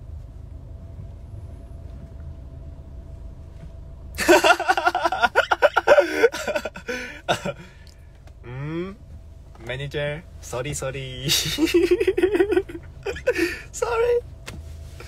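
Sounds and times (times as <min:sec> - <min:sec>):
car cabin rumble: 0:00.0 - 0:15.0
man laughing loudly: 0:04.2 - 0:07.7, 0:11.3 - 0:13.7.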